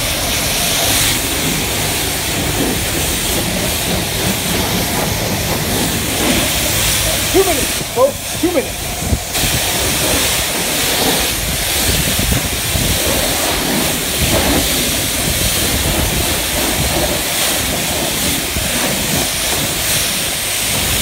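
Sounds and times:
high-pressure water spray hissing: 0.0s - 21.0s.

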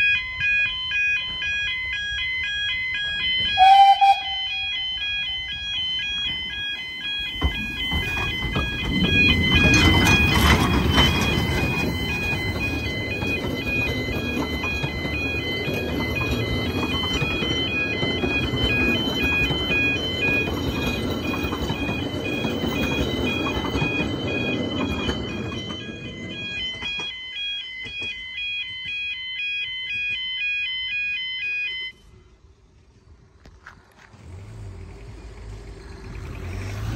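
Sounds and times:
level crossing alarm tones: 0.0s - 32.1s
steam train rumbling: 2.7s - 27.1s.

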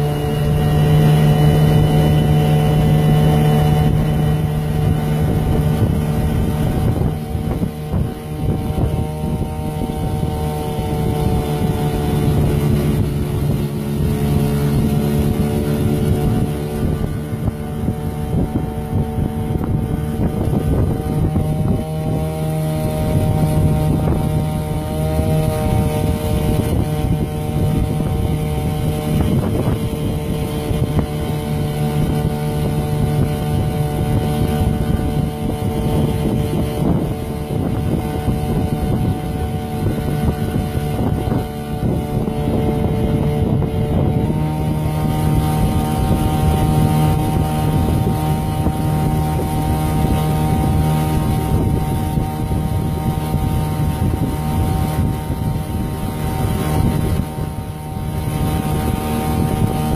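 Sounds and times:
outboard motor running: 0.0s - 59.9s.

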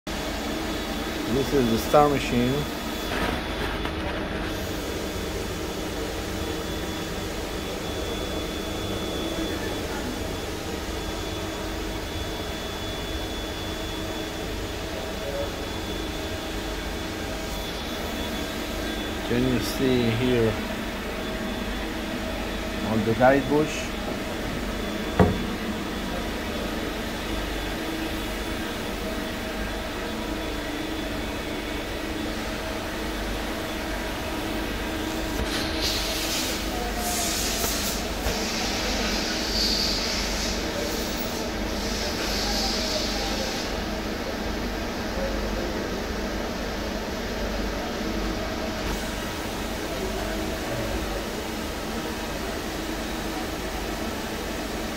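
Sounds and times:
lathe machine hum: 0.1s - 35.8s
sharp knock: 25.2s - 25.5s.

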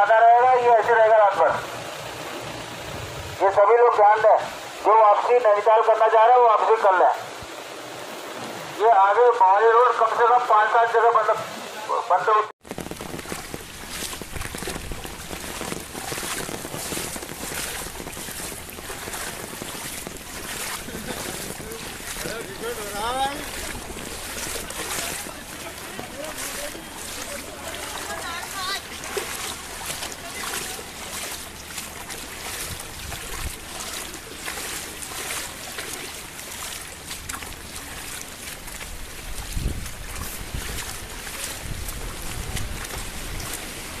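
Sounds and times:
heavy rain pouring: 0.0s - 44.0s
water running across road: 0.0s - 44.0s
wind noise on microphone: 12.6s - 22.6s, 23.5s - 24.9s, 32.5s - 33.7s, 38.9s - 44.0s.

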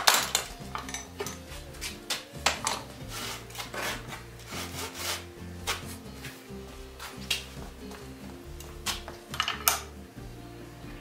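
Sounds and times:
metal tools clinking and scraping: 0.0s - 5.0s, 8.6s - 10.0s
background music: 0.0s - 11.0s.

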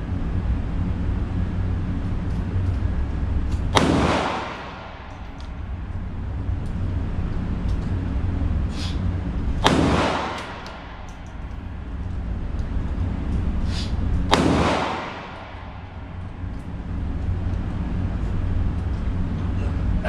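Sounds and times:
steady low rumble: 0.0s - 20.0s
pistol shots echoing indoors: 3.7s - 5.5s, 9.6s - 11.4s, 14.2s - 17.1s.

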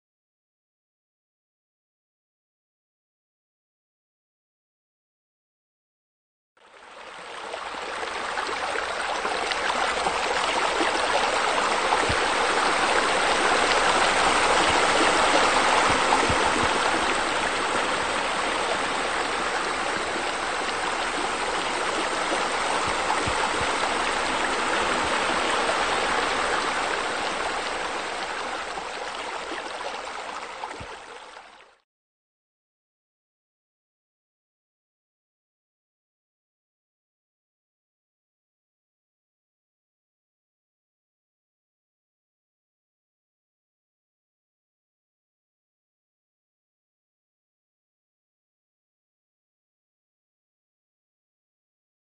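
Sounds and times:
running splashing water: 7.5s - 31.6s.

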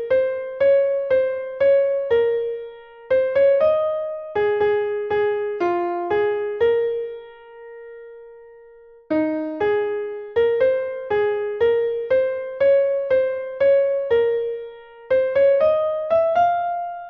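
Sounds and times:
computer-generated piano melody: 0.0s - 17.0s.

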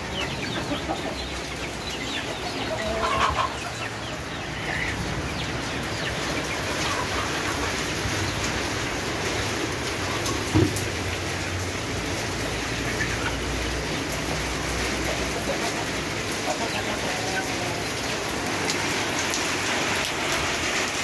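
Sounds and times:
steady rain falling: 0.0s - 21.0s.

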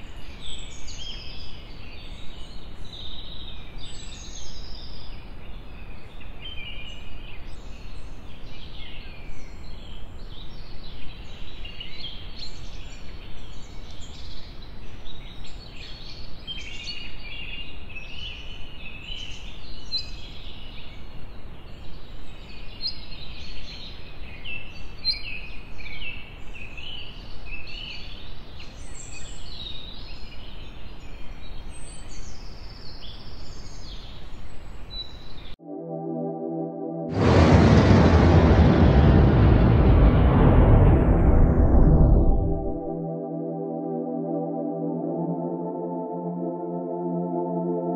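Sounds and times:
steady low rumble: 36.1s - 45.1s.

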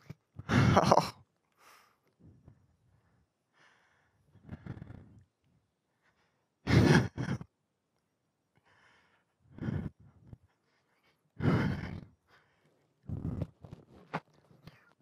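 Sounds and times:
heavy breaths out: 8.6s - 13.6s.

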